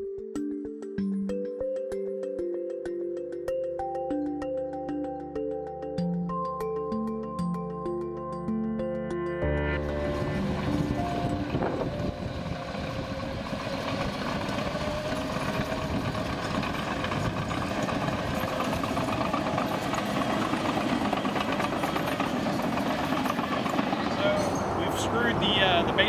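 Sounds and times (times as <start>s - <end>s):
diesel dozer engine under load: 9.8s - 26.0s
track clatter: 9.8s - 26.0s.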